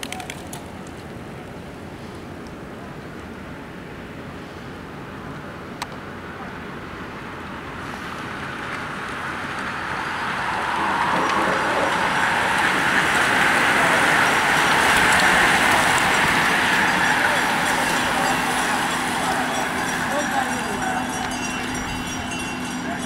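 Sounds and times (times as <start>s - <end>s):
bicycles passing on asphalt: 6.6s - 23.0s.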